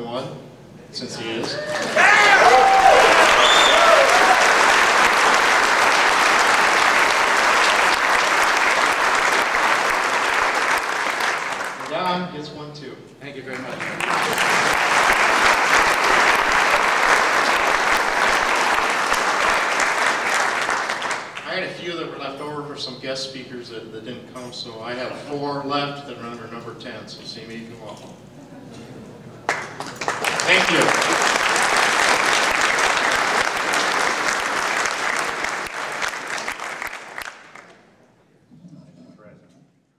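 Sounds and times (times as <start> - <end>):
people clapping: 1.3 - 12.2, 13.4 - 21.6, 29.4 - 37.9
audience applauding: 1.4 - 12.0, 13.5 - 21.4, 29.4 - 37.8.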